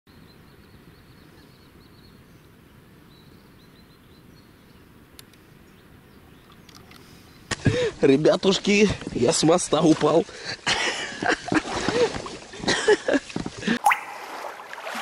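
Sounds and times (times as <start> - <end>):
faint click: 5.1 - 5.5.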